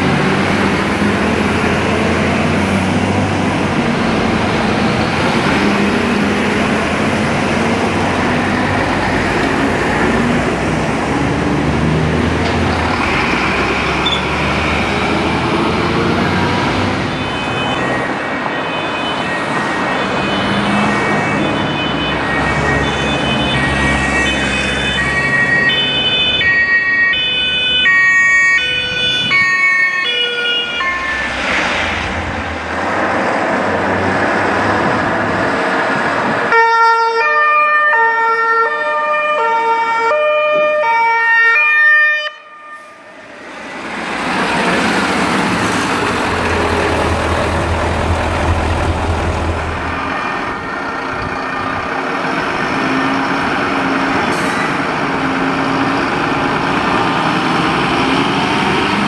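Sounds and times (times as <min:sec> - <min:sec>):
engine and road noise: 0:00.0 - 0:59.0
fire engine two-tone horns: 0:17.0 - 0:31.4, 0:36.5 - 0:43.4
diesel engine running: 0:43.1 - 0:59.0.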